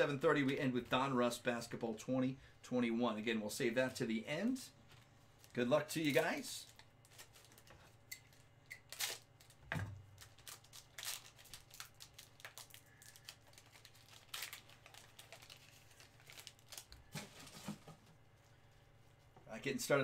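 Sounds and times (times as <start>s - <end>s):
plastic wrapper crinkling and tearing: 5.3s - 17.5s.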